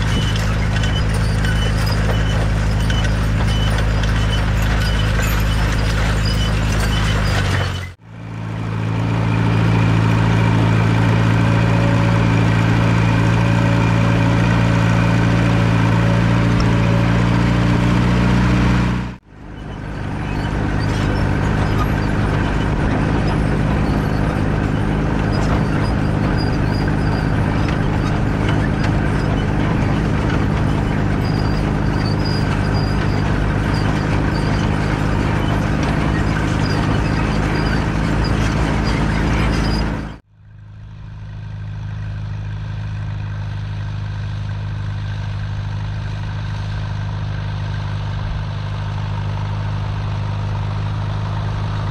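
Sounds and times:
grain drill rattling: 0:00.0 - 0:08.0, 0:19.4 - 0:40.1
tractor engine running under load: 0:00.0 - 0:51.9.

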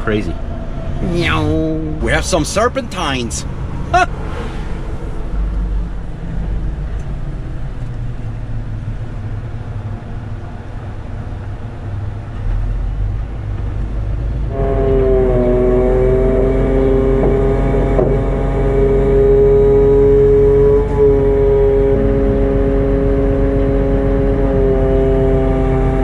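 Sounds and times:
truck engine and road drone: 0:00.0 - 0:26.0.

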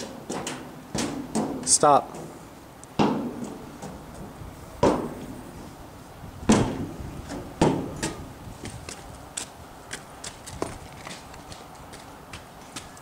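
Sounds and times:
loud thuds: 0:00.0 - 0:02.4, 0:03.0 - 0:05.4, 0:06.4 - 0:08.3.

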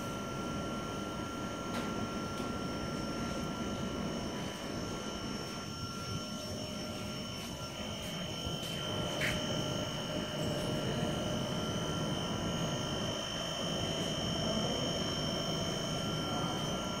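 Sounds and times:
steady mechanical roar: 0:00.0 - 0:17.0
high-pitched whines: 0:02.6 - 0:17.0.

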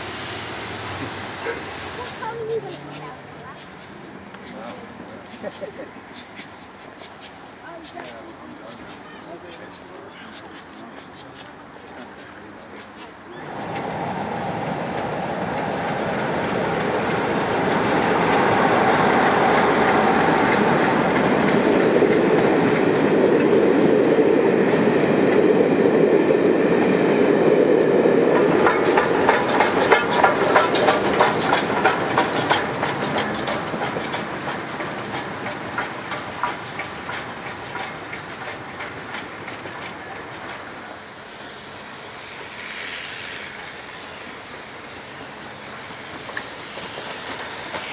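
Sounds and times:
train rumble: 0:00.0 - 0:47.9
wheels clicking over rail joints: 0:12.0 - 0:24.2, 0:28.2 - 0:41.2, 0:45.1 - 0:47.9.

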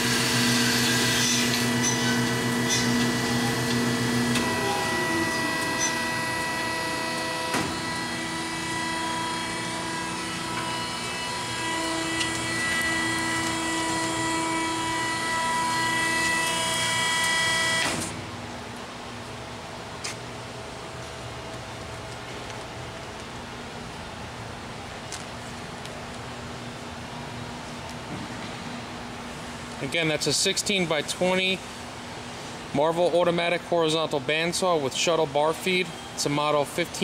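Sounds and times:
band saw hum and whine: 0:00.0 - 0:19.7.

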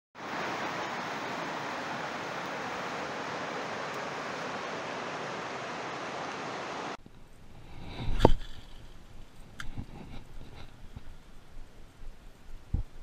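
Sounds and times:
river rapids rushing: 0:00.2 - 0:07.0.

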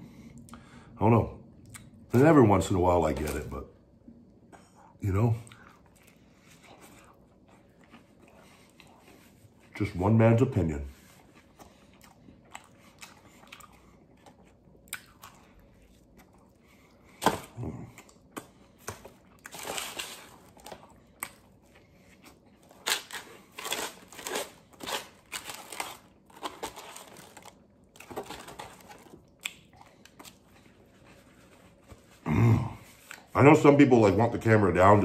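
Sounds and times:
man chewing and biting: 0:05.4 - 0:09.7, 0:11.1 - 0:32.1
paper crinkling: 0:22.6 - 0:29.2.

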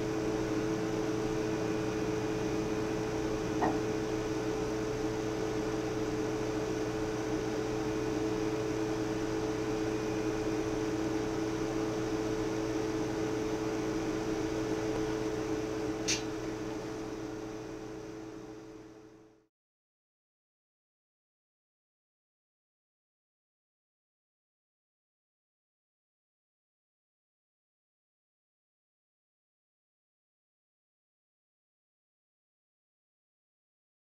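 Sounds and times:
electrical hum with held tones: 0:00.0 - 0:19.5.

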